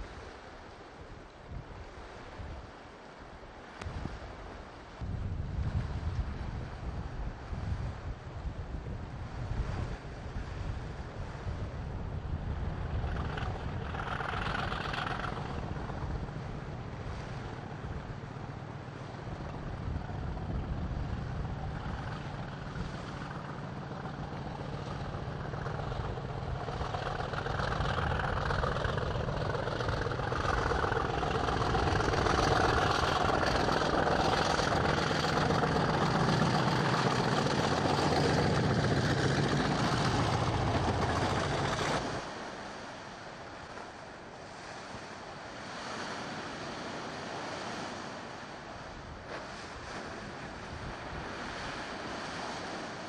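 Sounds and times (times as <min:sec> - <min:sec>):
waves breaking: 0:00.0 - 0:53.0
wind: 0:00.0 - 0:53.0
diesel locomotive passing: 0:12.5 - 0:42.4.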